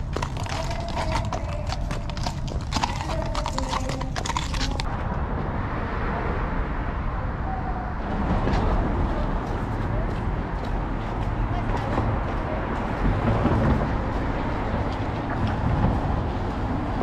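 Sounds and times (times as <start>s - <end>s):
hooves clip-clopping on pavement: 0.0s - 5.1s, 8.4s - 17.0s
street noise hiss: 4.8s - 17.0s.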